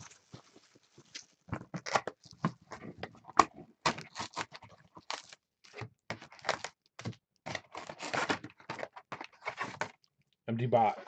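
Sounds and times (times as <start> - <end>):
card packs crinkling and rustling: 0.0 - 10.0
packaging tearing: 7.5 - 10.0.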